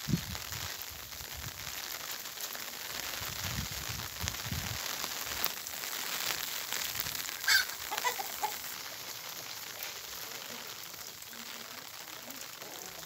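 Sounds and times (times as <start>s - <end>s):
rain falling on vegetation: 0.0s - 13.0s
bird calling: 7.4s - 8.7s.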